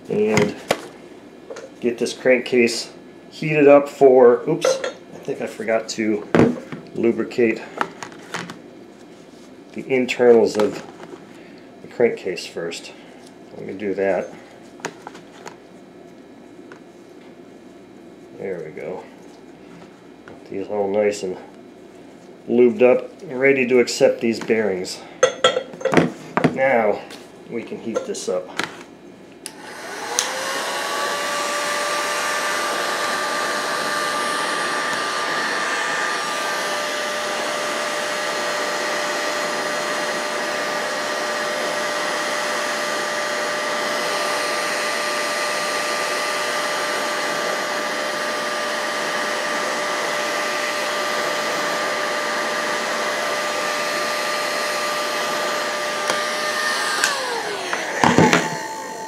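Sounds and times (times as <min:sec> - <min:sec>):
heat gun fan blowing: 0:00.0 - 0:59.0.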